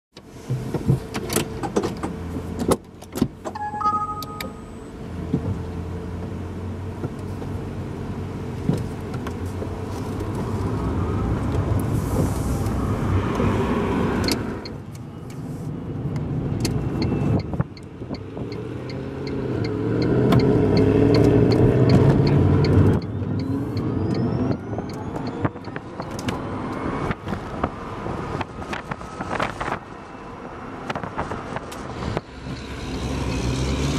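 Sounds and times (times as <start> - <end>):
wind and road noise: 0.1 - 33.9
short electronic beep: 3.6 - 5.0.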